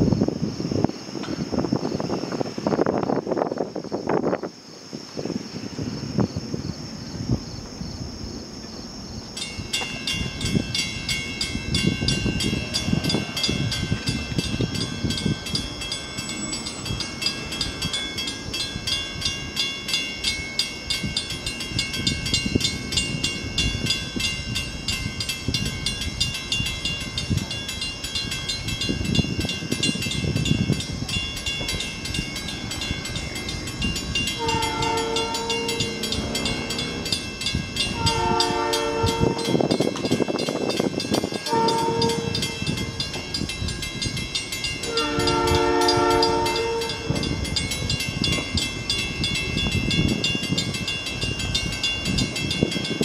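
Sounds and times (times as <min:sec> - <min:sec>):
distant train rumble: 0:00.0 - 0:53.0
insects chirring: 0:00.0 - 0:53.0
train air horn blasts: 0:34.3 - 0:37.1, 0:37.9 - 0:39.7, 0:41.4 - 0:42.8, 0:44.8 - 0:47.2.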